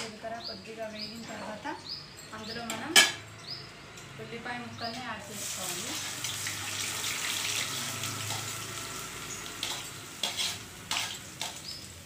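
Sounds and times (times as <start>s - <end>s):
hot oil sizzling: 4.9s - 12.0s
onions scraped from steel plate: 9.6s - 11.6s.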